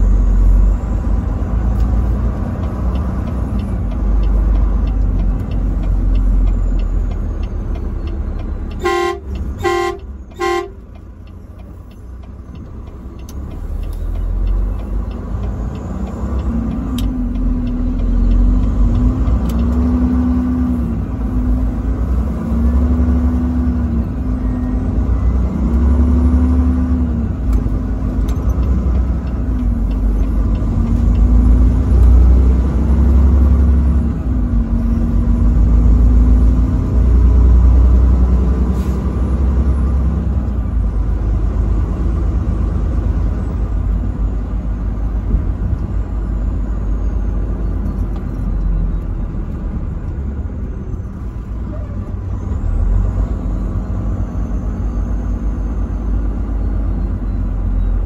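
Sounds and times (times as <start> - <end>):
truck engine rumble: 0.0 - 58.0
truck horn blasts: 8.7 - 10.9.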